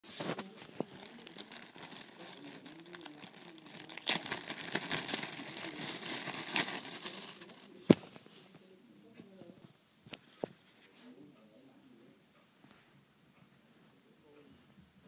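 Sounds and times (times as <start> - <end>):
plastic bag crinkling: 0.3 - 8.1.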